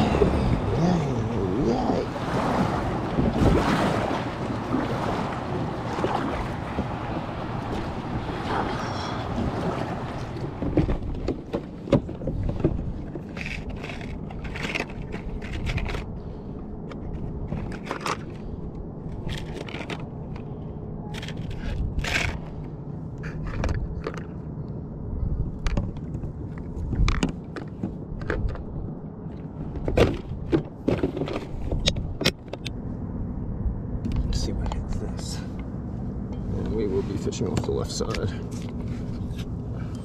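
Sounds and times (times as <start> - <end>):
plastic tackle box rattling: 10.7 - 16.2, 29.8 - 31.6.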